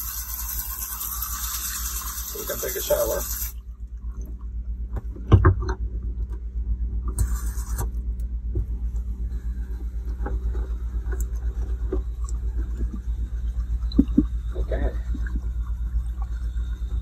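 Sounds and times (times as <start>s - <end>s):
water flowing from faucet: 0.0s - 4.3s, 9.3s - 17.0s
water pump humming: 0.0s - 17.0s.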